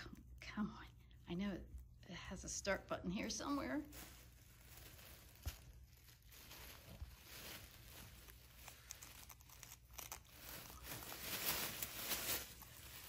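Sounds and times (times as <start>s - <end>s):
tissue paper rustling and crinkling: 2.6s - 13.0s.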